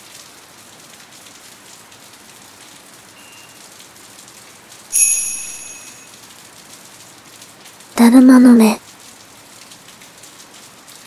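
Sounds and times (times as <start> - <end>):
steady rain falling: 0.0 - 11.0
bright chime ringing: 4.9 - 6.1.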